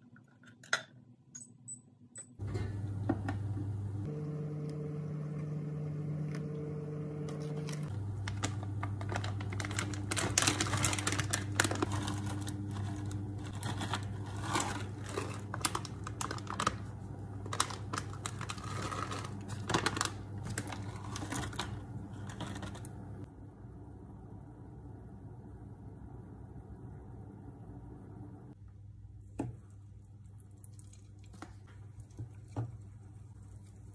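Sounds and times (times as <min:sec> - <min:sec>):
induction hob electrical hum: 0:00.0 - 0:33.9
paper towel crinkling: 0:07.4 - 0:23.0.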